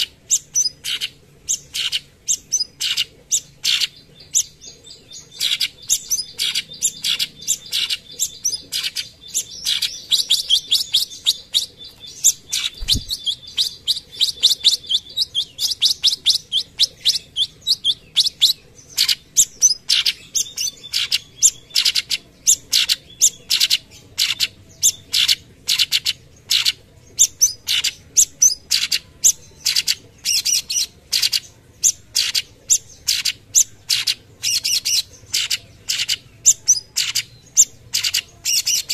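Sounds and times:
bird rapid chirping song: 0:00.0 - 0:38.9
low thump: 0:12.8 - 0:13.2.

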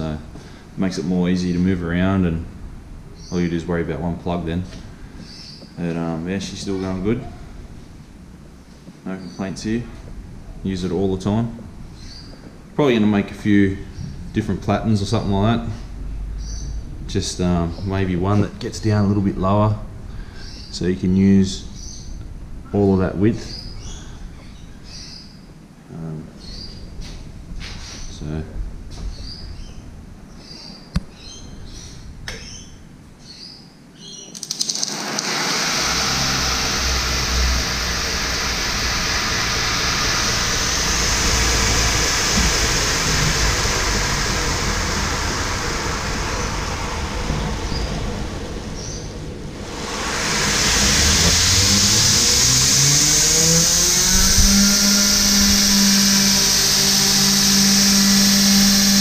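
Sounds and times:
belt grinder motor whirring: 0:34.4 - 0:59.0.

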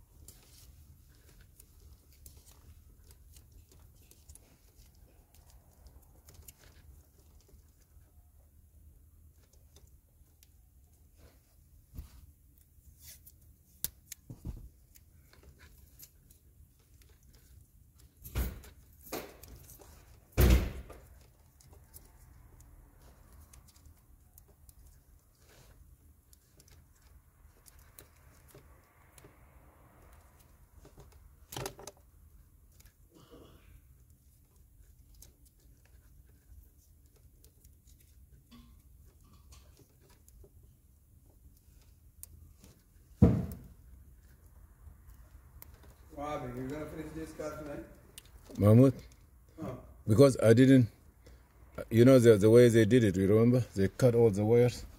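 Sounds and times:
faint small clicks and ticks: 0:20.9 - 0:33.1.

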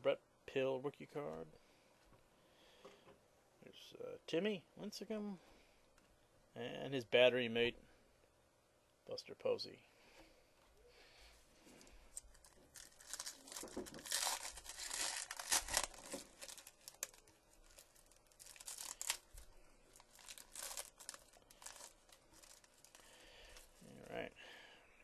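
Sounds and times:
plastic wrap crackling: 0:12.1 - 0:24.2.

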